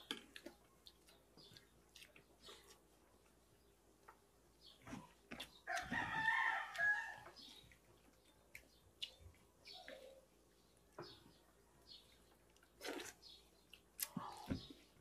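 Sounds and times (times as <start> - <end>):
rooster crowing: 5.7 - 7.3.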